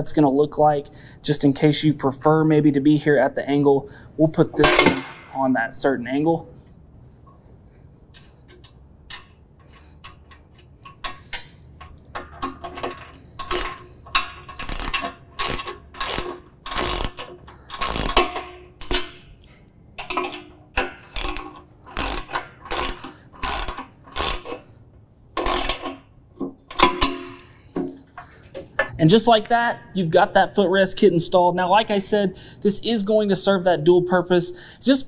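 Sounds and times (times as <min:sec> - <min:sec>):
socket ratchet clicking: 0:08.2 - 0:24.7, 0:25.4 - 0:26.1.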